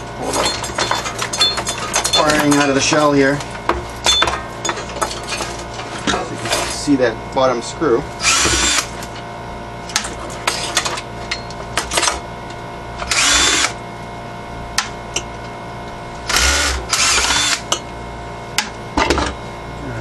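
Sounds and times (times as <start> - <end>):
steady hum: 0.0 - 20.0
clatter of metal parts: 0.2 - 6.9
cordless drill whirring: 8.2 - 8.9, 13.0 - 13.8, 16.3 - 17.6.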